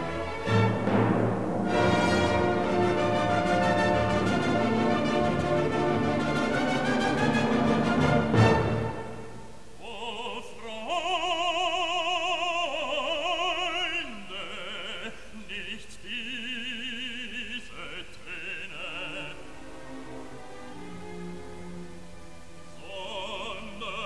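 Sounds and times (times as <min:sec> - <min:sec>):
operatic voice singing: 0:09.8 - 0:19.8, 0:22.8 - 0:24.0.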